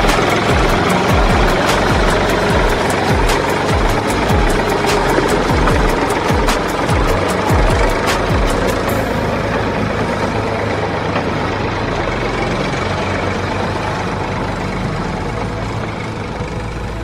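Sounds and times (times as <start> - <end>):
heavy engine idling: 0.0 - 17.0.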